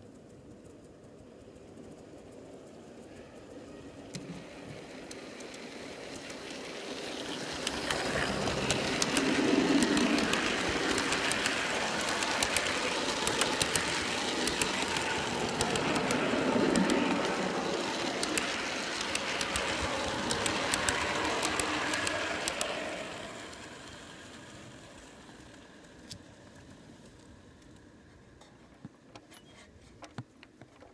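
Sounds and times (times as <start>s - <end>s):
model train rolling rumble: 0.0s - 28.7s
rapid wheel clicks: 4.1s - 26.2s.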